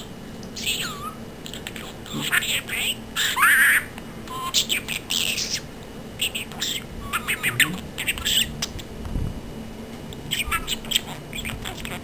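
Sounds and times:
budgerigar chattering: 6.3s - 8.6s, 10.3s - 12.0s.

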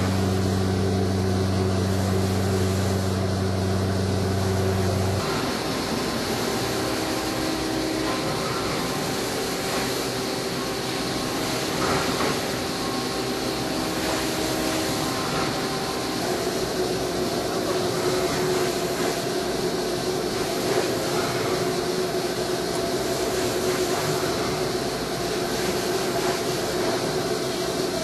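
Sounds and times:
machine cutting and spindle noise: 0.0s - 28.0s
steady hum: 0.0s - 28.0s
hiss: 5.2s - 28.0s.

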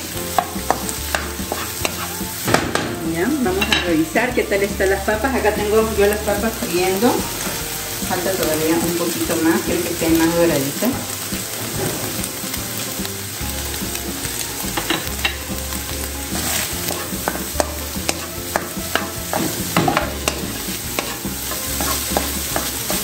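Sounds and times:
food sizzling in a frying pan: 0.0s - 23.0s
spatula scraping a pan: 0.2s - 2.5s, 14.7s - 23.0s.

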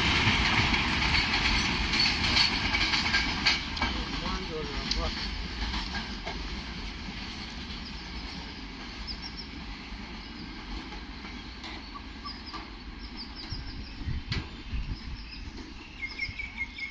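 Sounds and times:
train wagons rumbling: 0.0s - 16.9s
birds chirping: 7.7s - 16.9s.

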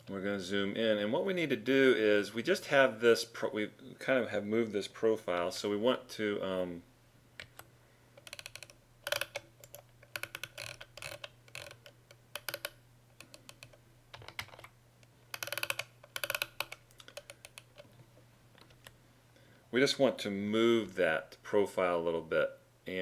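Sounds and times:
mouse and keyboard clicking: 7.4s - 14.7s, 15.3s - 17.9s.

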